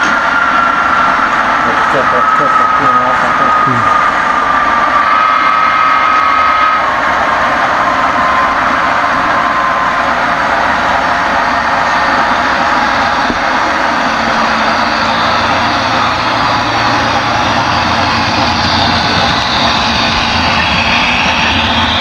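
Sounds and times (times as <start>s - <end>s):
model train wheels rumbling: 8.1s - 22.0s.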